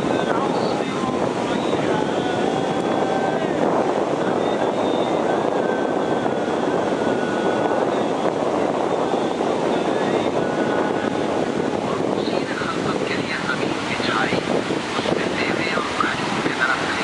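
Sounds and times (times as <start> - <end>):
floodwater rushing through spillway: 11.2 - 17.0.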